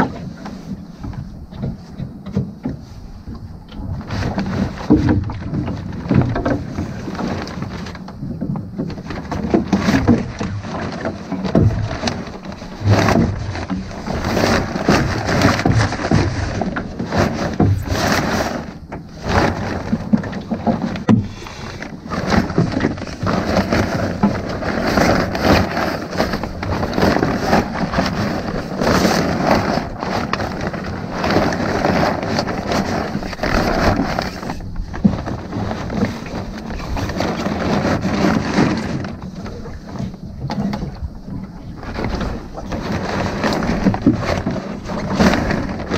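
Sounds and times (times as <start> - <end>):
sail cloth crackling and rustling: 0.0 - 45.9.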